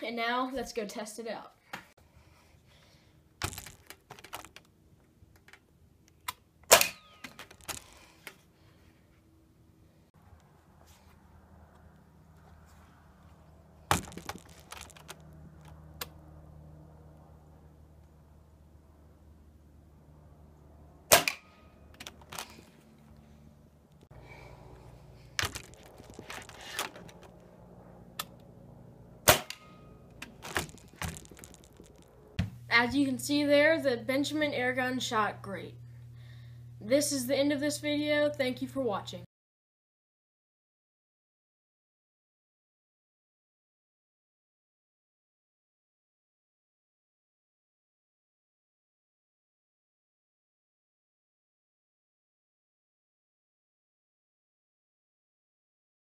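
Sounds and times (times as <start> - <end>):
gun handling clicks and knocks: 3.4 - 8.4, 13.9 - 15.8, 21.2 - 22.7, 25.3 - 27.4, 29.4 - 32.6
air rifle shot crack: 21.1 - 21.6, 29.2 - 29.8.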